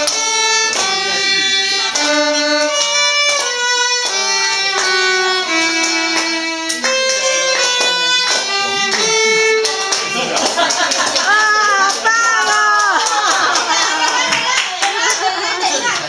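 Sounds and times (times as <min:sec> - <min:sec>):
two violins playing slow melody: 0:00.0 - 0:12.0.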